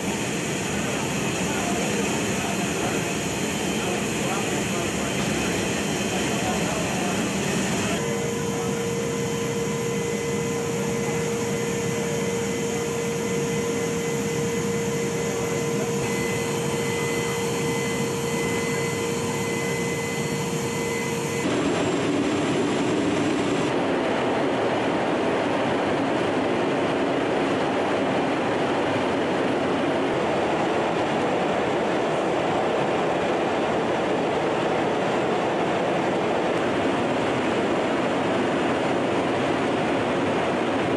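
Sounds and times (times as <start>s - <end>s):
aircraft engine drone from inside: 0.0s - 40.9s
steady whine: 0.0s - 40.9s.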